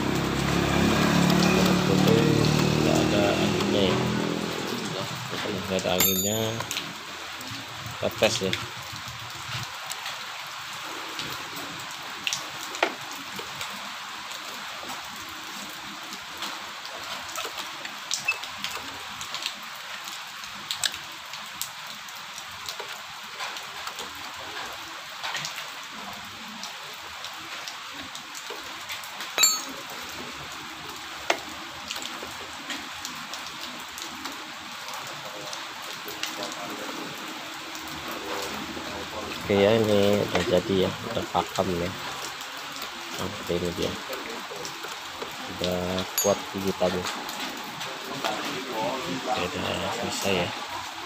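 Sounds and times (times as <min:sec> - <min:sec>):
steady rain falling: 0:00.0 - 0:51.0
drips: 0:14.5 - 0:21.9, 0:37.8 - 0:47.8.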